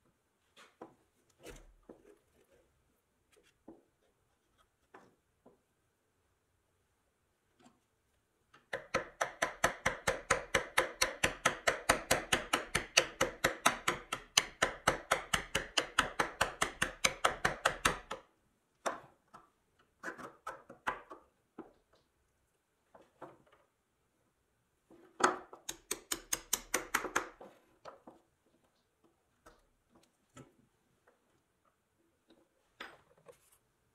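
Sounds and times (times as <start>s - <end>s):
hammer tapping on metal rod: 25.2s - 27.4s.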